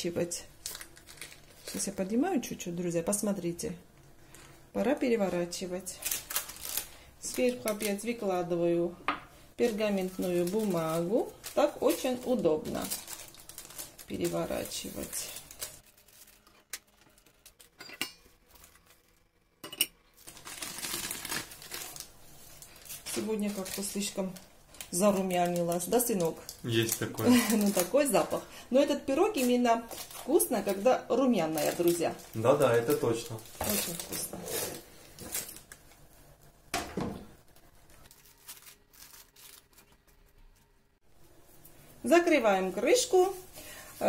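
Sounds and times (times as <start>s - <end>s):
parchment paper rustling: 0.6s - 2.2s, 5.2s - 8.3s, 9.6s - 17.8s, 18.4s - 19.2s, 20.2s - 36.1s, 37.5s - 40.8s.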